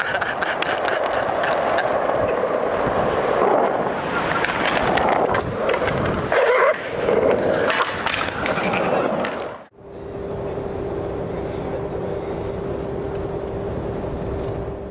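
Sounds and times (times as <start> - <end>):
skateboard wheels rolling on concrete: 0.0 - 9.7
skateboard clicks: 0.1 - 9.6.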